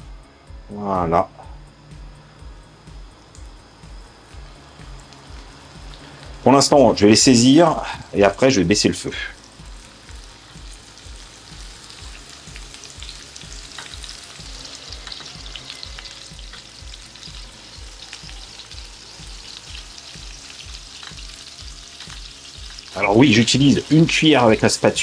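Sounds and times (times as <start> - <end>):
soft low beat: 0.0 - 0.7, 1.3 - 8.2
meatballs sizzling in oil: 2.8 - 25.0.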